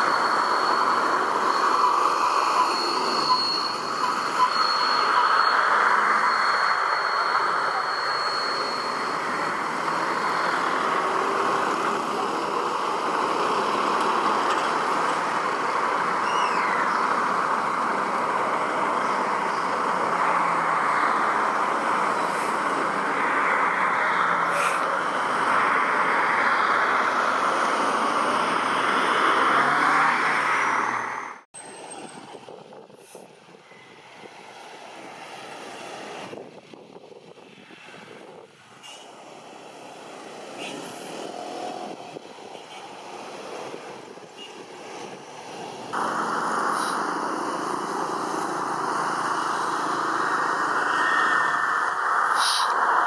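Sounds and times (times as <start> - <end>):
jet engines roaring at takeoff: 45.0 - 53.0.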